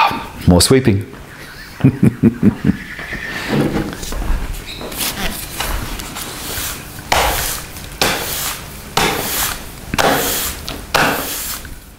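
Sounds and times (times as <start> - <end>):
push broom sweeping concrete floor: 4.9 - 11.9.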